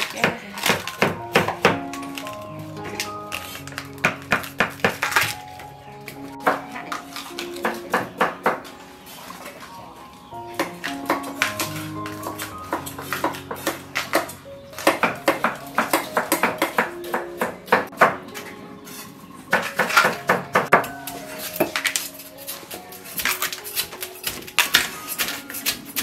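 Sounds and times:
soft background music: 0.0s - 26.0s.

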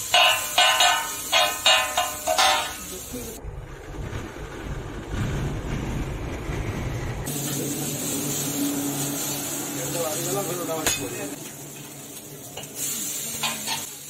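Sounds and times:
spatula clanging on iron griddle: 0.0s - 2.9s, 10.8s - 11.9s, 12.6s - 14.0s
low steady rumble: 3.1s - 7.3s.

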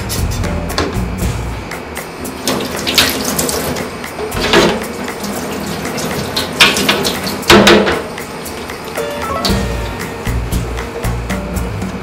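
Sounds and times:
tap water splashing into sink: 2.4s - 8.7s
knife and cutting board rinsed: 2.4s - 9.0s.

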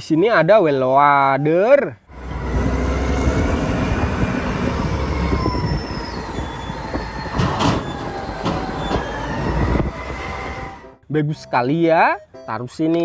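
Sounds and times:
loud rattle: 2.1s - 10.9s
diesel engine running hard: 2.1s - 11.0s
thin whines: 2.1s - 11.0s.

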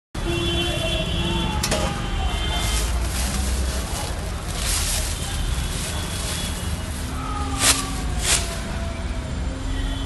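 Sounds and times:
plastic wrapping crinkling: 1.6s - 8.9s.

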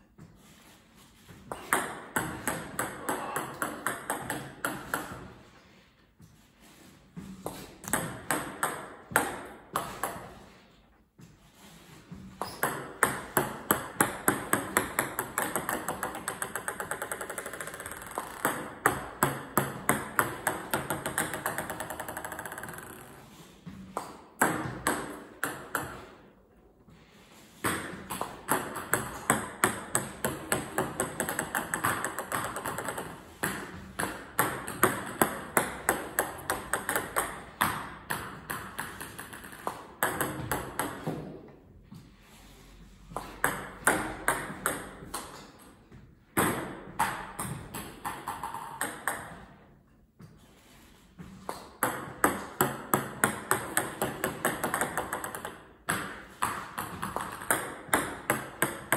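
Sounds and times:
balls bouncing on table: 1.2s - 5.5s, 7.2s - 10.6s, 12.2s - 26.4s, 27.6s - 41.6s, 43.0s - 50.4s, 51.2s - 58.9s
table tennis balls clicking: 1.5s - 5.3s, 12.4s - 23.2s, 28.0s - 41.4s, 46.4s - 49.6s, 51.5s - 58.9s.

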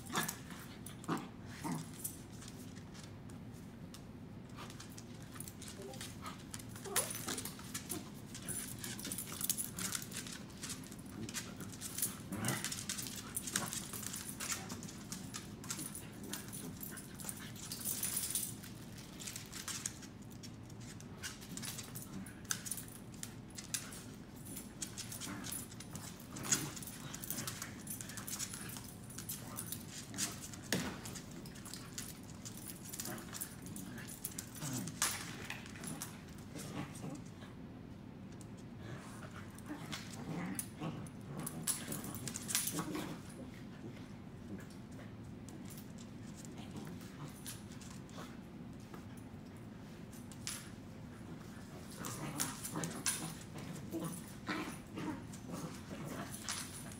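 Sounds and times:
claws clicking on hard floor: 0.0s - 37.3s, 50.1s - 56.9s
dogs scuffling: 0.0s - 37.3s.

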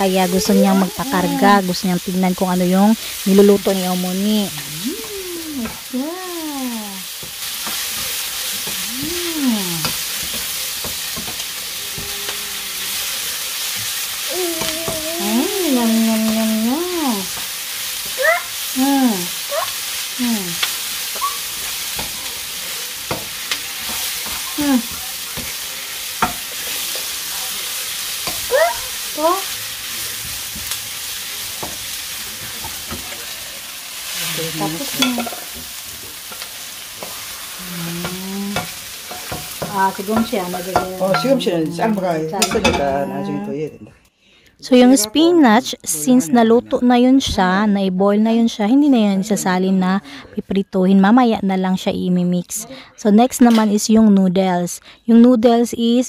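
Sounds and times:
person calling out: 0.0s - 1.7s, 4.2s - 7.0s, 8.8s - 9.9s, 14.3s - 17.3s, 18.2s - 20.6s, 45.9s - 46.9s
vegetables sizzling in oil: 0.0s - 43.1s.

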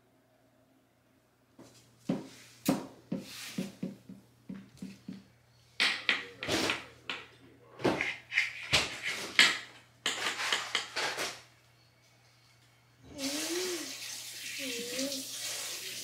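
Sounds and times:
dishes and utensils clinking: 5.8s - 11.4s.

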